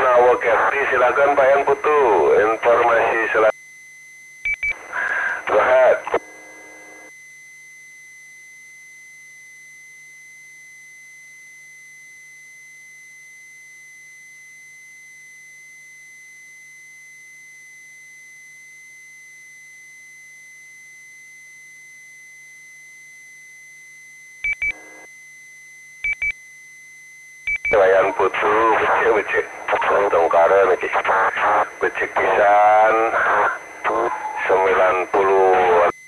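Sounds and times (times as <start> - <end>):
short double beeps: 26.0 - 26.4, 27.5 - 27.8.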